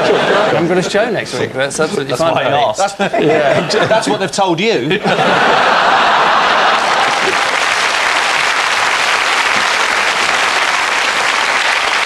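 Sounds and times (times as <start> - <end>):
audience applause: 5.5 - 12.0.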